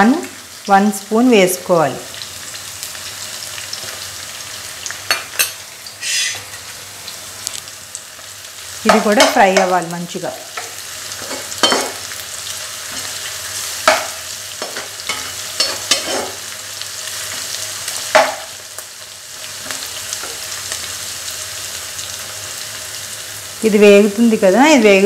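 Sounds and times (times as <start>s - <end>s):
food sizzling in hot oil: 0.0s - 25.0s
spatula scraping pan: 13.9s - 16.4s.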